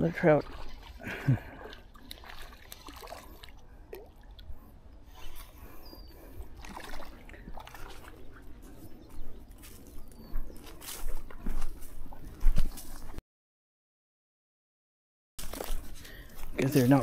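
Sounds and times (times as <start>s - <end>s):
small water splashes: 0.0s - 4.7s, 6.4s - 8.4s.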